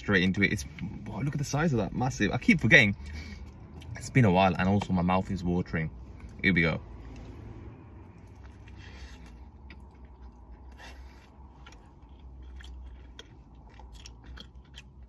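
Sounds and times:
low steady hum: 0:00.0 - 0:15.0
crunchy chewing: 0:08.1 - 0:15.0.

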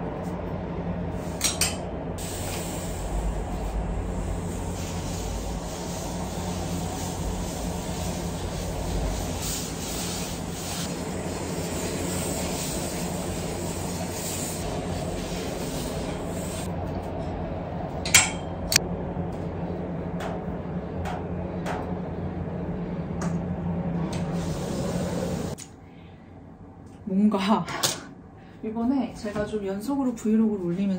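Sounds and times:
low rumble of outside noise: 0:00.0 - 0:29.8
garment steamer hissing: 0:02.2 - 0:16.7, 0:24.3 - 0:25.6.

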